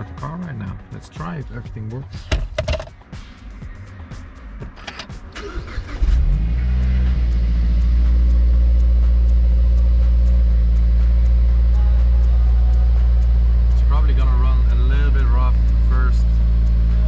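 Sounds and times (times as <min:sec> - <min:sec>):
car engine starting and fast idling: 0:04.8 - 0:11.8.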